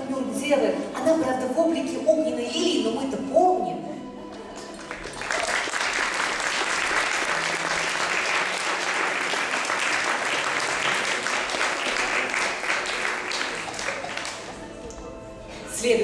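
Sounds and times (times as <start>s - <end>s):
audience applauding: 4.6s - 14.7s.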